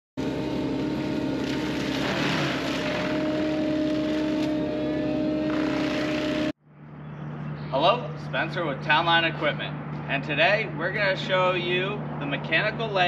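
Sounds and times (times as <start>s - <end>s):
forestry mulcher grinding brush: 0.2s - 6.5s.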